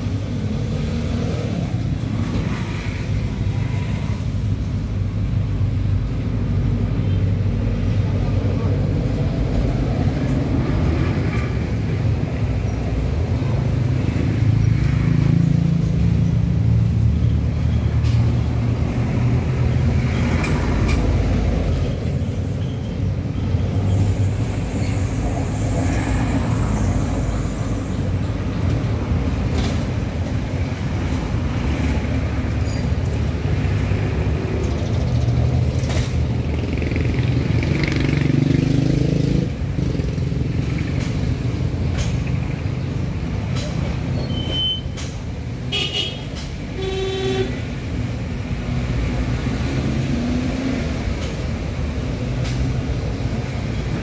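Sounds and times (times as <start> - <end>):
motor traffic rumble: 0.0 - 54.0.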